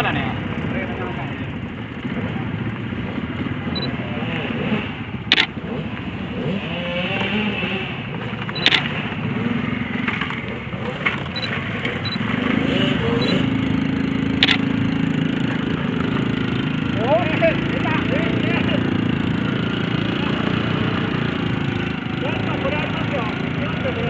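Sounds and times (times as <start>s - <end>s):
small motorcycle engine at low revs: 0.0s - 24.0s.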